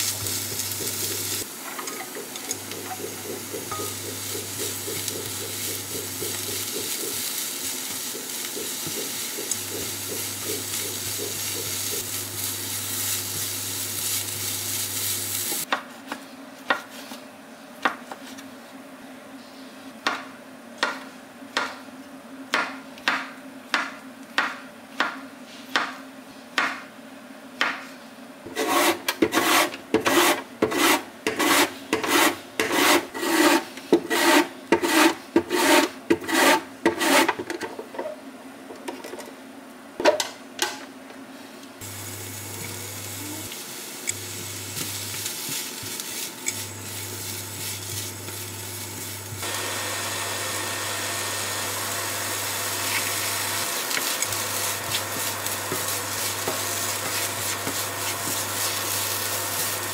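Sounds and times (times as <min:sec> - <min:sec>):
vegetables frying in a pan: 0:00.0 - 0:15.7, 0:41.8 - 0:59.9
low electric hum: 0:38.0 - 0:59.9
grater rasping: 0:52.9 - 0:59.9.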